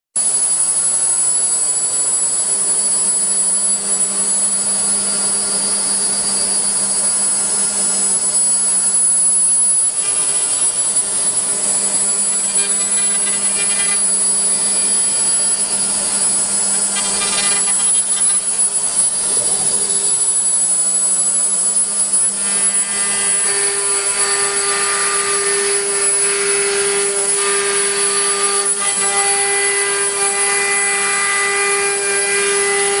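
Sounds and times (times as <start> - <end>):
router bit cutting wood: 0.2 - 33.0
wood router spindle whine: 0.2 - 33.0.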